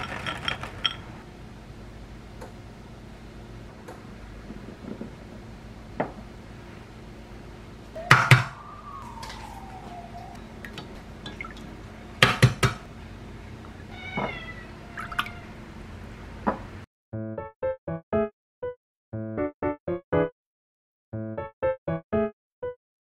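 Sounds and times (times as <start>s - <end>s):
eggs and glassware clinking: 0.0s - 1.1s, 10.7s - 11.7s
clear tone sliding down: 7.9s - 11.9s.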